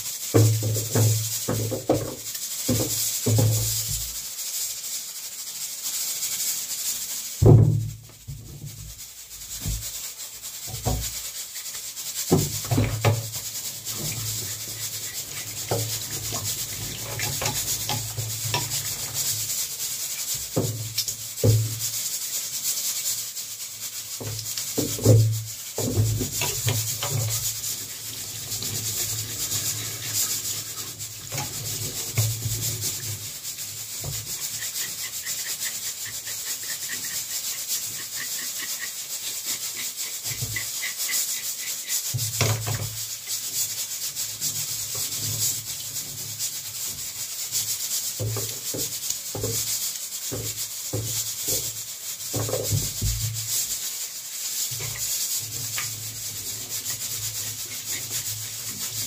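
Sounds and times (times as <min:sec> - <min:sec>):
food rasping on a grater: 0:00.0 - 0:59.0.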